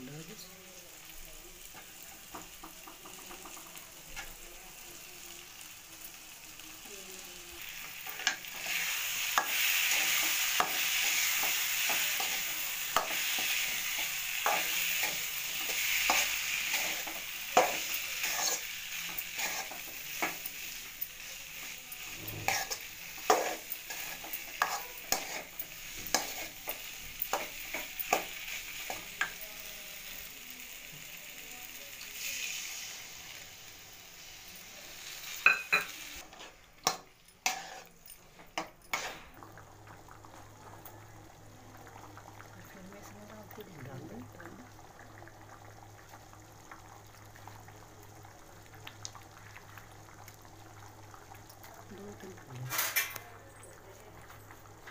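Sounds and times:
potato sizzling in oil: 0.0s - 54.9s
metal spoon scraping a pan: 8.0s - 20.8s, 21.6s - 29.3s, 35.1s - 38.0s, 38.6s - 39.3s.

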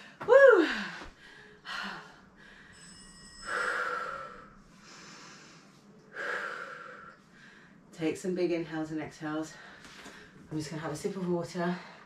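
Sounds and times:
woman breathing hard: 0.0s - 7.9s.

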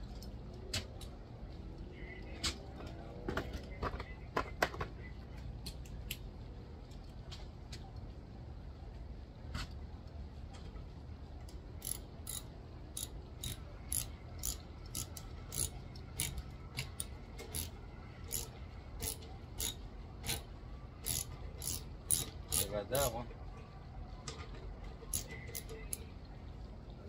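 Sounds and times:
ratchet wrench clicking: 11.8s - 23.1s, 25.1s - 26.1s.

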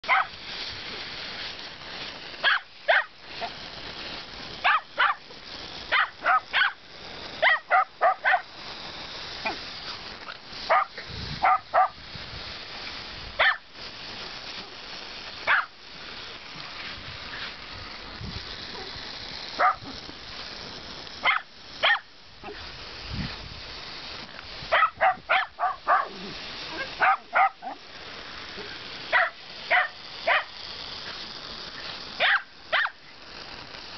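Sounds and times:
lawn sprinkler hissing: 0.0s - 33.9s
dogs barking: 0.1s - 0.3s, 10.7s - 12.0s, 13.4s - 13.6s, 15.5s - 15.7s, 24.7s - 26.2s, 27.0s - 27.8s, 29.1s - 30.5s, 32.2s - 33.0s.

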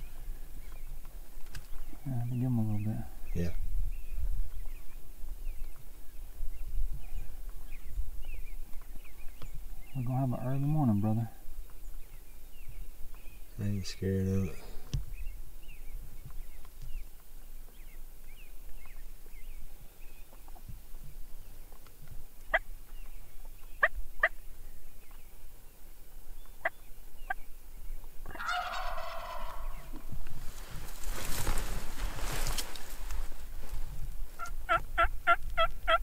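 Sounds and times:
small birds chirping: 0.0s - 36.0s
turkey gobbling: 28.2s - 30.2s, 34.4s - 36.0s.

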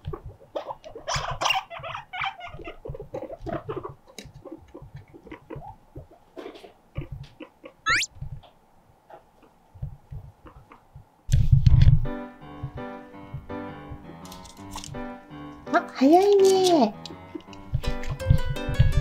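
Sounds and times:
guinea pig squeak: 0.2s - 6.1s, 7.9s - 8.1s.

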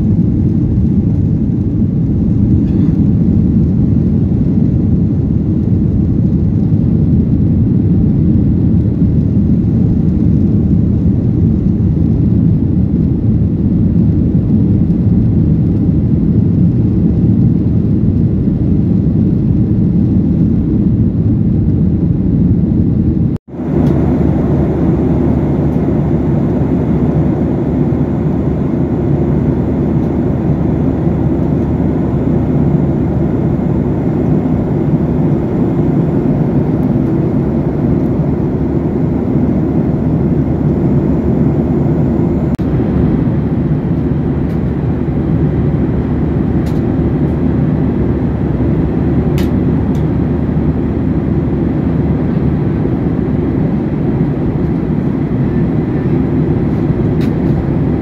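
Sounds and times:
airliner cabin engine drone: 0.0s - 58.0s.

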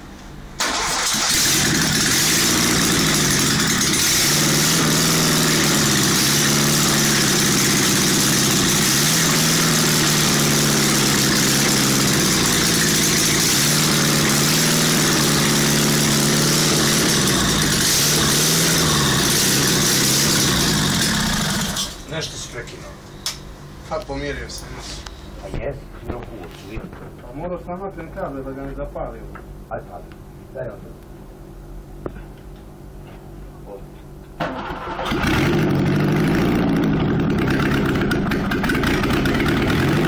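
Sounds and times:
car engine revving: 0.6s - 22.0s, 34.5s - 40.0s.

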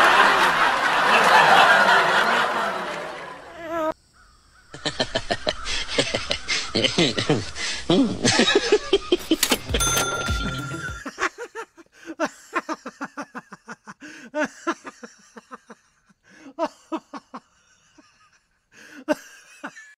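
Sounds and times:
person laughing: 1.1s - 3.2s, 4.7s - 9.4s, 10.9s - 17.4s.

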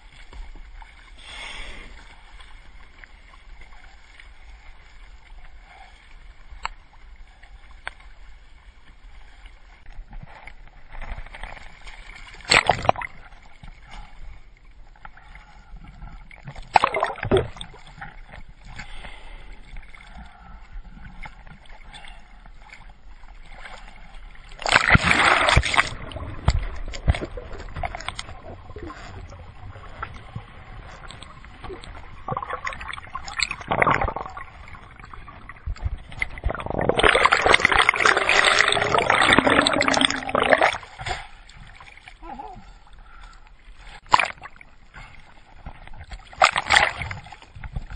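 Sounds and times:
water splashing against kayak: 0.0s - 47.9s
water gurgling underwater: 16.2s - 18.4s, 24.5s - 42.8s.

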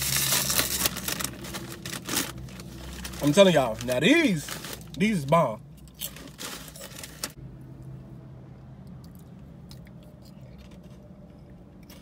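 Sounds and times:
crackers crunching: 0.0s - 7.4s.

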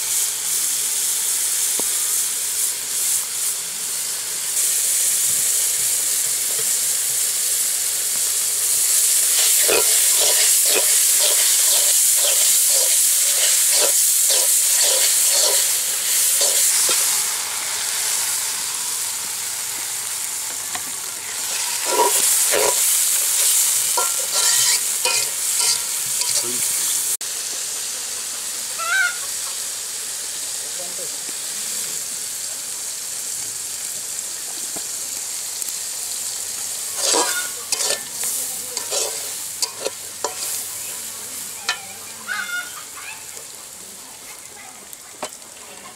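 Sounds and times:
vegetables sizzling in a wok: 0.0s - 45.9s
metal spatula scraping pan: 9.3s - 17.2s, 21.4s - 26.7s, 36.9s - 40.7s.

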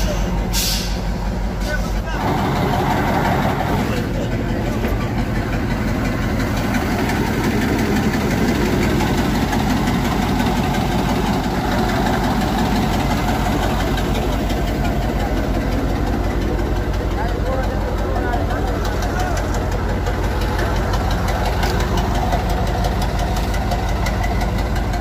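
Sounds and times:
diesel truck engine idling: 0.0s - 25.0s.

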